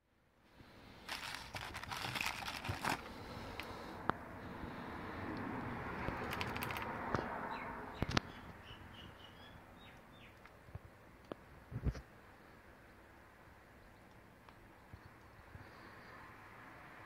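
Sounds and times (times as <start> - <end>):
rustling with light clicks: 1.1 - 3.7, 6.0 - 6.9.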